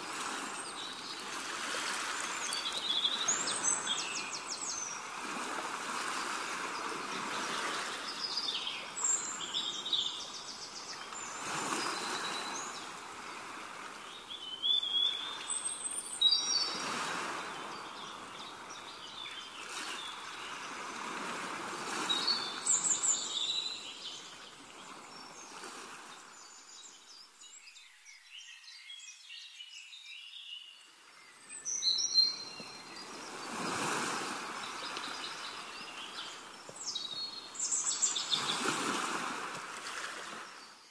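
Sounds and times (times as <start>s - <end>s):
birds chirping: 31.4s - 38.9s.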